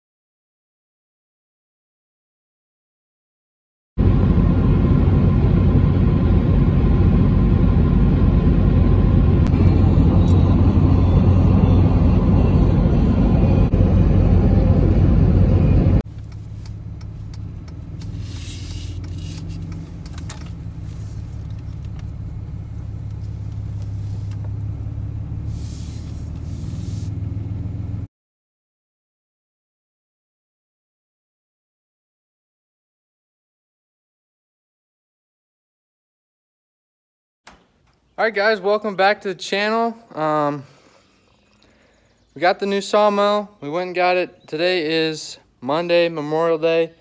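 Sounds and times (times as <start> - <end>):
low engine hum: 4.0 - 28.1
road and engine noise in cab: 4.0 - 28.1
brief hissing swishes: 18.0 - 20.0, 25.5 - 27.2.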